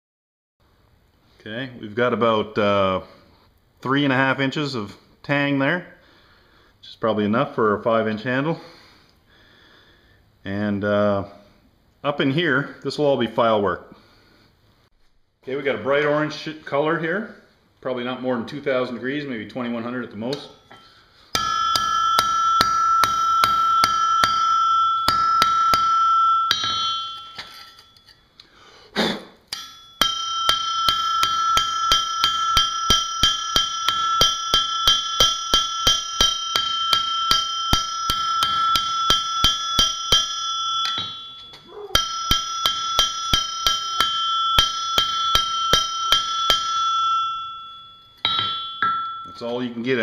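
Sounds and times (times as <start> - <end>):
hammer striking hot metal: 20.3 - 28.2, 29.5 - 49.5
anvil ringing: 20.3 - 28.4, 29.5 - 50.0.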